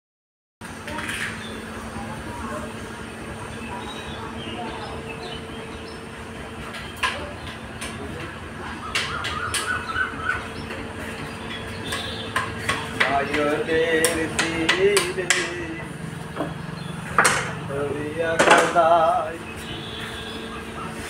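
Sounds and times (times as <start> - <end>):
sharp knocks and clicks: 11.5 - 15.6, 16.4 - 17.6.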